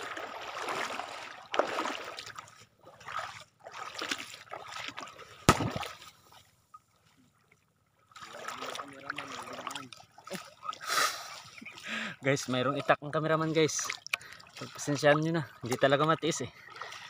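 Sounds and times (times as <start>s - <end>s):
seawater splashing and sloshing: 0.0s - 17.0s
sharp loud splash: 3.1s - 6.1s.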